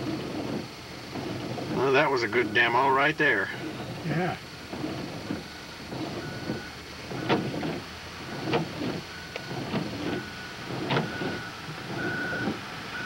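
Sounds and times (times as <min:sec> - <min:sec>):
low engine rumble: 0:00.0 - 0:13.0
sharp knocks and clunks: 0:09.6 - 0:11.4.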